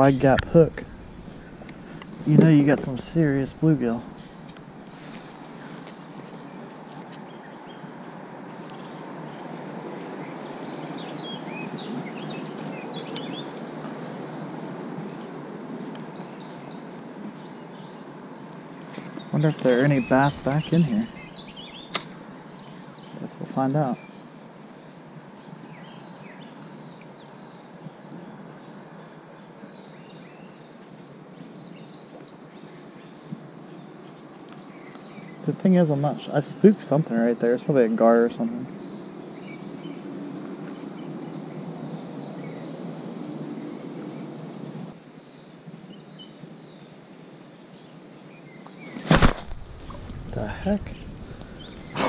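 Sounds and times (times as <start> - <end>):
steady rushing noise: 0.0 - 6.8
birds chirping: 0.0 - 15.4, 16.0 - 47.0, 47.6 - 52.0
steady background hiss: 0.0 - 52.0
small bird chirping: 19.1 - 23.4.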